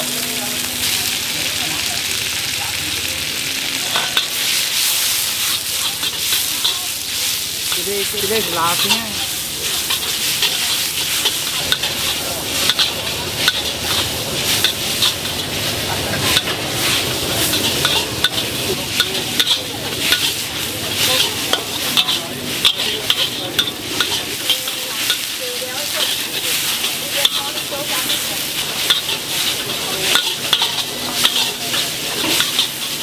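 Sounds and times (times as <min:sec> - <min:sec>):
noodles sizzling in a wok: 0:00.0 - 0:33.0
spatula clacking against wok: 0:07.6 - 0:15.5, 0:16.1 - 0:33.0.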